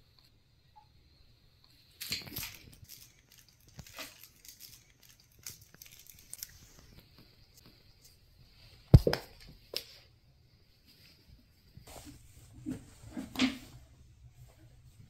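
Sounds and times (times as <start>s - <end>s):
kittens crunching chew strip: 2.0s - 7.0s.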